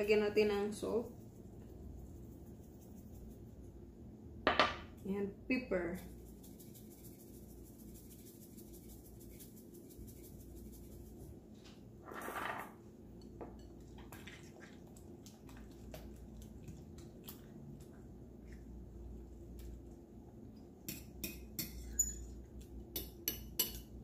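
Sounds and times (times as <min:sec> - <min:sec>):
fork clicking in china bowl: 0:22.9 - 0:23.9.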